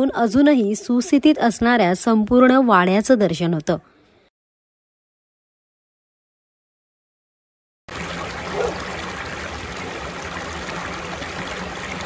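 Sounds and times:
water trickling over stone ledge: 7.9s - 12.0s.

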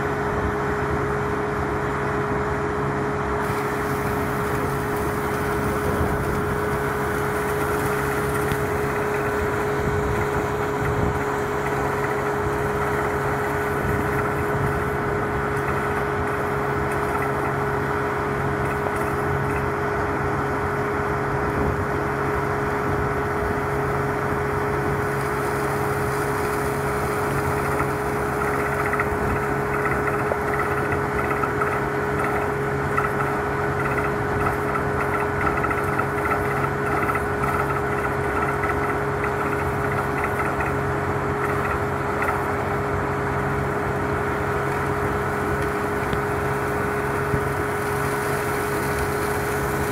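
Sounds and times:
drilling rig engine drone: 0.0s - 49.9s
compressed air blowing water: 3.4s - 19.7s.

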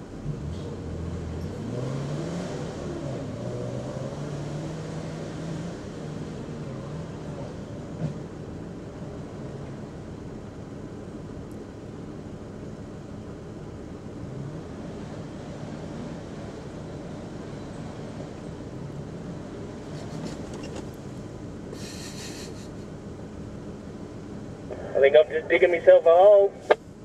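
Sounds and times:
engine revving under load: 0.2s - 8.3s.

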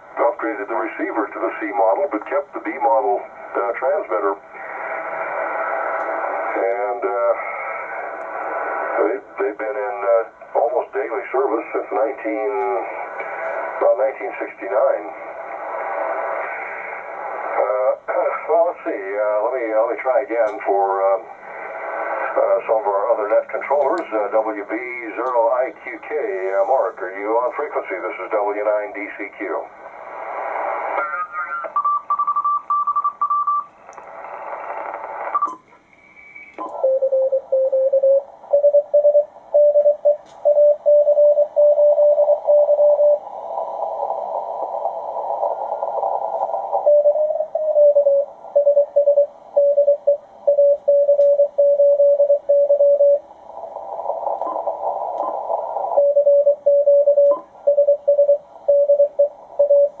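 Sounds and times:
receiver hiss: 0.0s - 60.0s
morse code tone: 56.0s - 60.0s.

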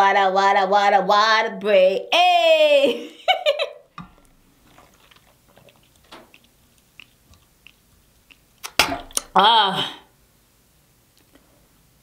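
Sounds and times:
sipping water through a straw: 4.1s - 9.3s.

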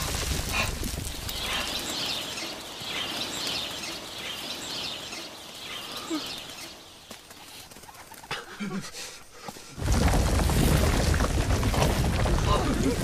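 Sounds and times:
wings flapping: 0.0s - 8.6s
bird calls: 0.5s - 8.8s.

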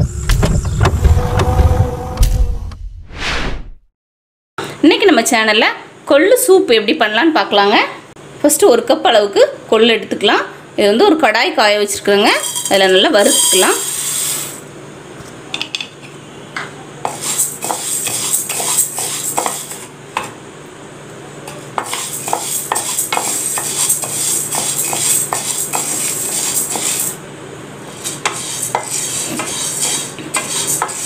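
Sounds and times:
seeds rattling in a pan: 12.4s - 14.3s.

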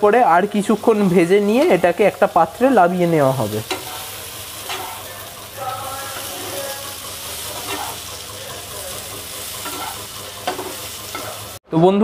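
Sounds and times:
vegetables sizzling in oil: 0.0s - 11.6s.

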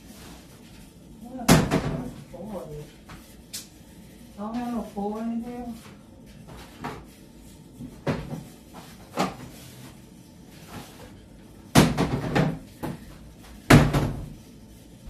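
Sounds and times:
cabinet door banging: 11.7s - 13.0s, 13.7s - 14.4s
cabinet doors knocking: 11.7s - 13.0s, 13.7s - 14.3s.

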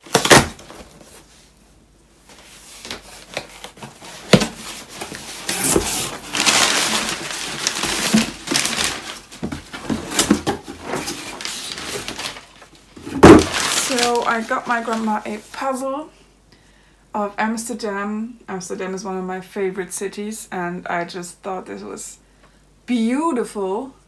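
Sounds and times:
paper packaging rustling: 2.2s - 15.6s.

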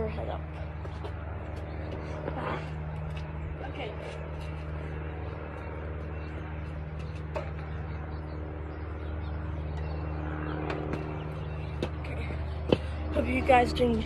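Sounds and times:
machine hum: 0.0s - 14.0s.

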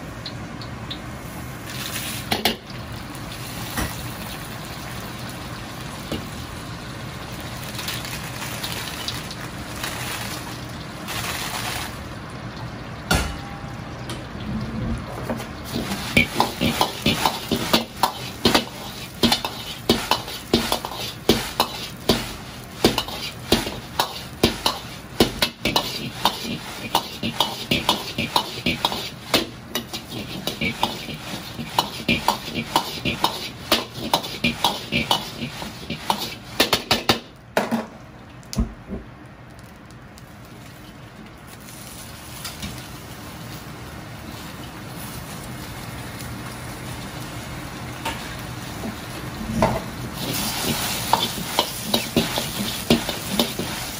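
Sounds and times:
food sizzling: 0.0s - 37.5s, 39.3s - 53.9s
ladle clanking on wok: 15.3s - 37.3s, 49.7s - 53.9s.

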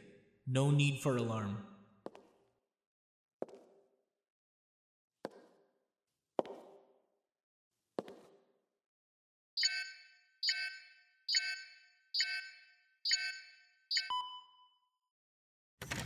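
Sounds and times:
electronic beeps: 9.6s - 14.8s.

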